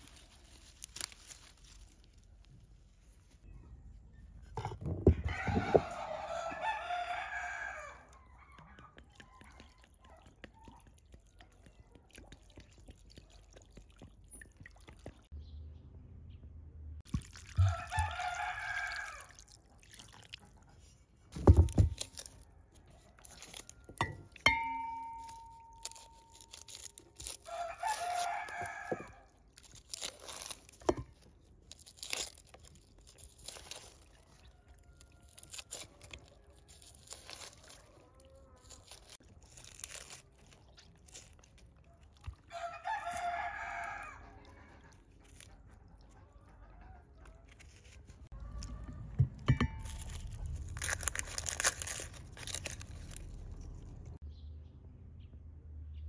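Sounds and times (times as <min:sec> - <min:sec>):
rooster crowing: 0:05.2 - 0:08.7, 0:17.6 - 0:19.3, 0:27.5 - 0:29.3, 0:42.5 - 0:44.7
knife and bowl clicks and scrapes: 0:23.2 - 0:31.3
short ringing clink: 0:24.0 - 0:25.8.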